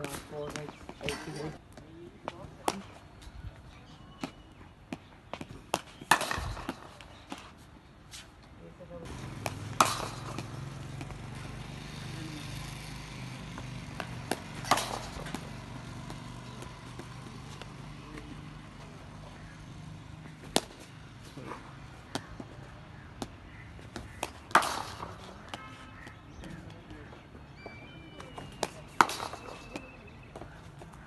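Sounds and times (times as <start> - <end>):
cricket bat striking ball: 5.0 - 7.5, 9.1 - 11.5, 13.4 - 18.2, 20.4 - 26.7, 28.2 - 31.0.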